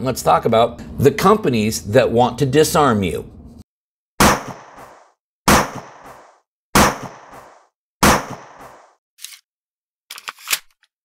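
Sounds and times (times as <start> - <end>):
gunshots: 4.2 - 8.9.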